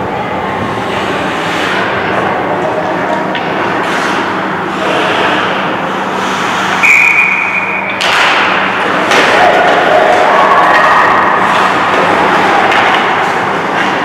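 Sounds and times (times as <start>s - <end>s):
skates and sticks on ice: 0.6s - 14.0s
referee's whistle: 6.8s - 8.0s.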